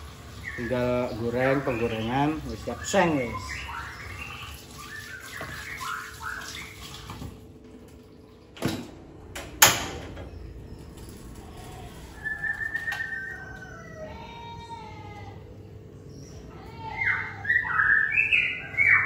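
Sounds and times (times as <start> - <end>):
bird chirping: 0.3 - 7.1, 10.2 - 14.0, 15.6 - 19.0
bird whistling: 1.5 - 7.1, 12.0 - 14.0, 16.1 - 19.0.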